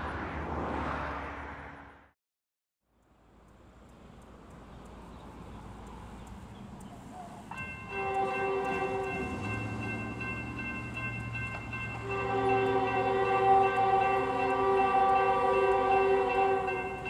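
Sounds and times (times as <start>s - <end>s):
locomotive engines rumbling: 4.0s - 17.0s
locomotive air horn: 7.8s - 9.7s, 12.0s - 17.0s.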